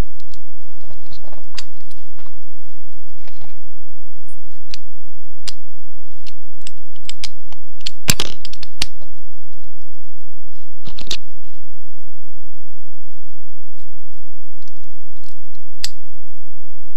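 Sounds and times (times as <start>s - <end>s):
loud steady low hum: 0.0s - 16.9s
padlock clicking and clattering: 6.2s - 9.0s.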